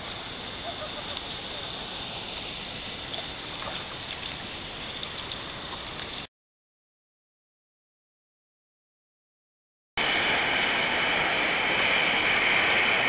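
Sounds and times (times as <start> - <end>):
steady hiss: 0.0 - 6.2, 10.0 - 13.0
seawater sloshing and lapping: 0.0 - 6.3.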